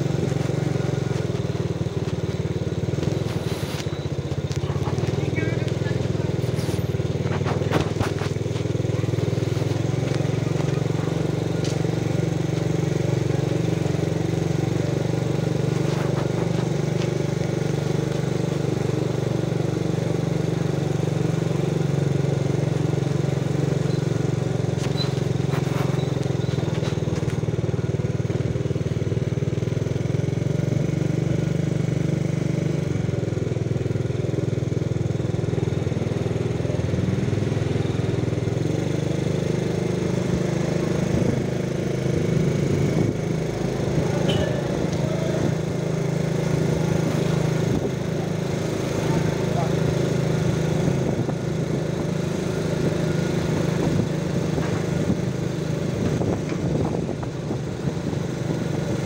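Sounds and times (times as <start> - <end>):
vehicle engines humming: 0.0 - 59.0.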